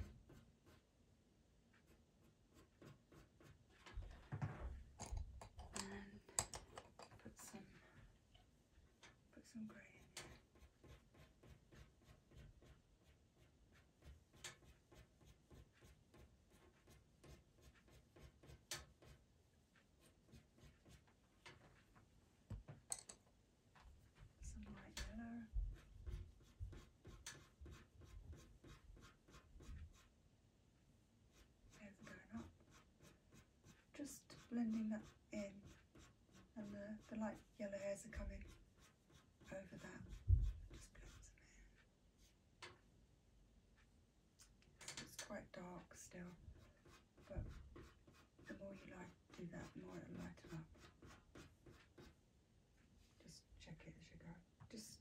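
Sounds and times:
pencil scratching on paper: 0:00.0 - 0:00.9, 0:01.7 - 0:03.8, 0:09.9 - 0:21.2, 0:24.4 - 0:30.2, 0:31.3 - 0:42.4, 0:45.9 - 0:52.2.

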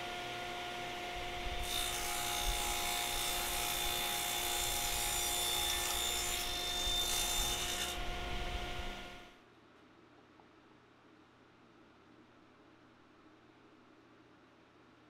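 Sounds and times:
table saw cutting wood: 0:00.0 - 0:09.2.

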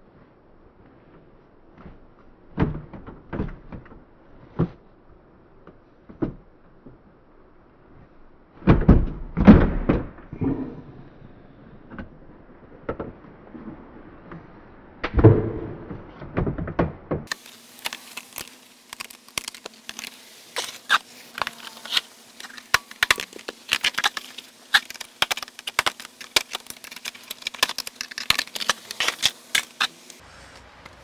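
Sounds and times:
faint steady hum: 0:17.3 - 0:31.0.

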